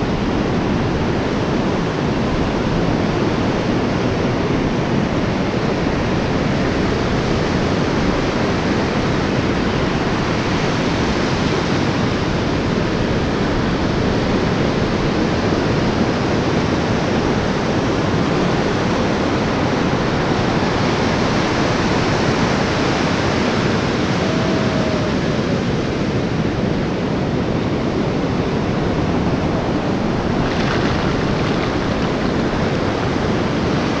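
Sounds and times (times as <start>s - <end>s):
wind buffeting microphone: 0.0s - 34.0s
ocean surf breaking: 17.7s - 34.0s.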